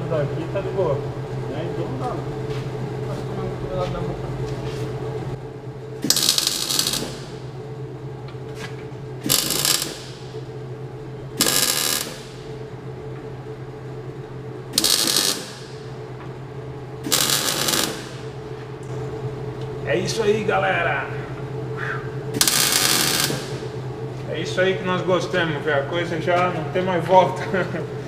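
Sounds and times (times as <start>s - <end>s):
steady low hum: 0.0s - 28.0s
arc welder crackling: 5.8s - 7.6s, 9.1s - 10.6s, 11.3s - 12.7s, 14.7s - 16.2s, 17.0s - 19.0s, 22.3s - 23.9s.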